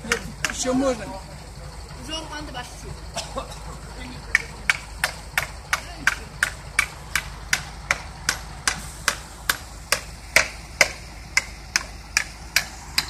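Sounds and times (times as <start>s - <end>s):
hammer striking nails: 4.3s - 13.0s.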